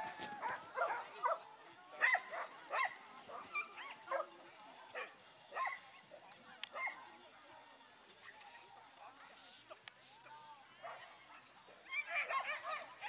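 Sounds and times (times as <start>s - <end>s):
dog barking and yipping: 0.4s - 1.4s, 2.0s - 2.9s, 11.9s - 12.9s.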